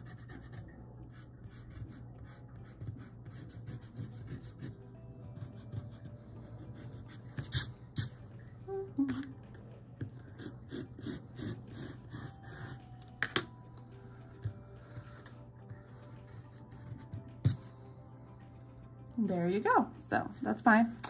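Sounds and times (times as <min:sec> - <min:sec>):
pencil scratching on paper: 0:00.0 - 0:07.7, 0:10.4 - 0:12.9, 0:14.3 - 0:17.7.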